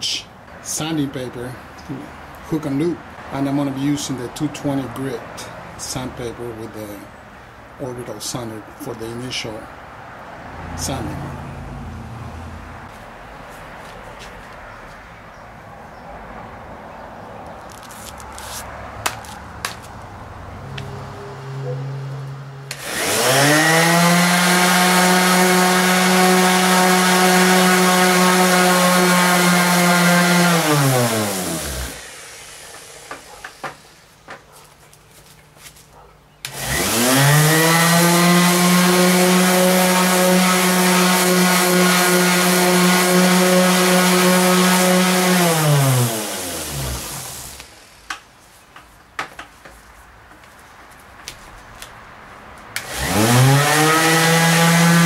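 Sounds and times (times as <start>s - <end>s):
orbital sander motor: 22.7s - 34.0s, 36.5s - 47.9s, 52.8s - 55.0s.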